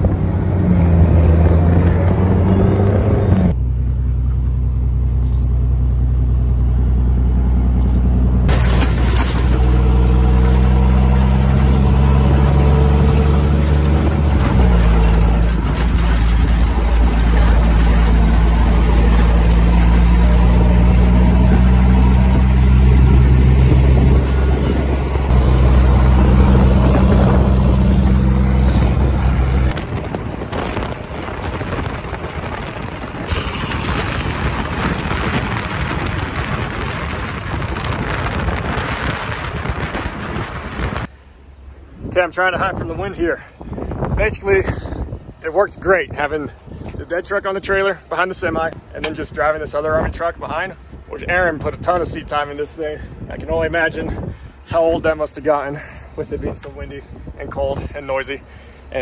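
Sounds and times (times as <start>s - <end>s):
diesel engine droning: 0.0s - 45.0s
wind and road noise: 0.0s - 59.0s.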